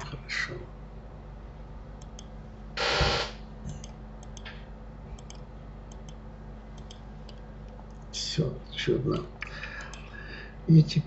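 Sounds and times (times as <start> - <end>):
steady low hum: 0.0 - 11.0
keyboard and mouse clicks: 3.7 - 4.6, 5.2 - 6.2, 6.8 - 8.1.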